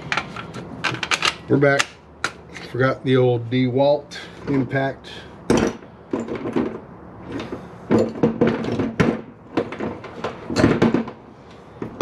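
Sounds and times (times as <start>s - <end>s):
hand tools knocking and clinking: 7.9s - 11.1s.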